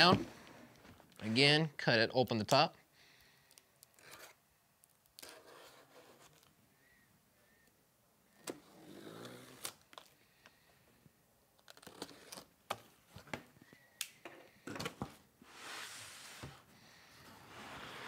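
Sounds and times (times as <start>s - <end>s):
cardboard scraping and rubbing: 17.3s - 18.0s.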